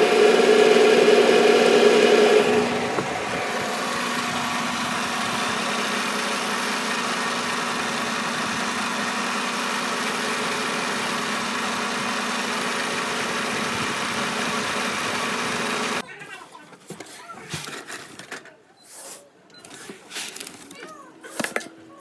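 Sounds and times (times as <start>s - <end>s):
milling machine humming: 0.0s - 16.0s.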